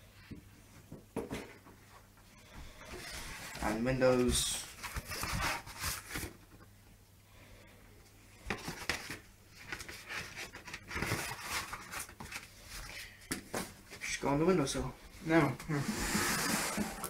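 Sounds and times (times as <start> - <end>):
cardboard envelope rustling: 3.0 - 6.4, 8.5 - 13.0.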